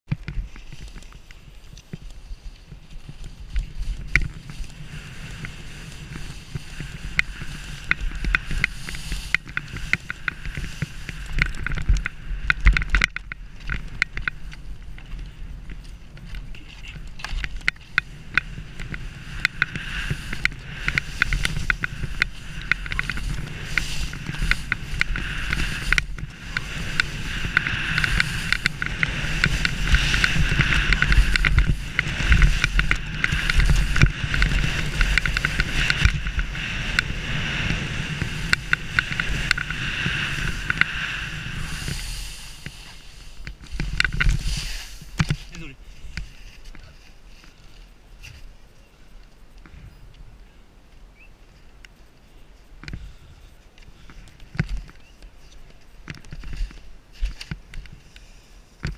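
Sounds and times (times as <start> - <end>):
wind rumbling on microphone: 0.0 - 58.9
skis scraping over snow: 0.3 - 48.7, 53.4 - 58.9.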